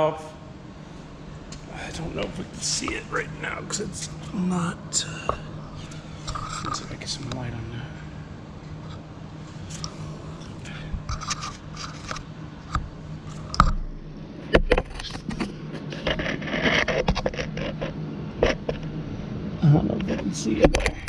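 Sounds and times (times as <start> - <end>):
low hum: 0.0 - 21.0
camera handling scraping: 11.0 - 12.3.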